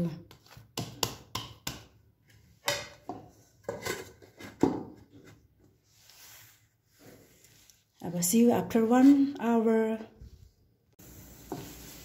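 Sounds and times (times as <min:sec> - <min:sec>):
hands patting dough in a bowl: 0:00.0 - 0:02.4.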